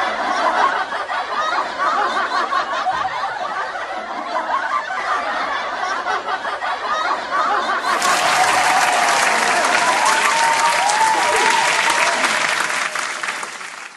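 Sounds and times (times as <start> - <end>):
laughter: 0.0 - 13.5
crowd clapping: 7.9 - 13.9.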